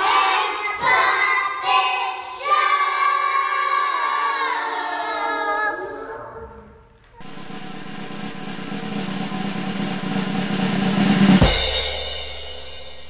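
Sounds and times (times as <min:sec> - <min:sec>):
young children singing: 0:00.0 - 0:07.3.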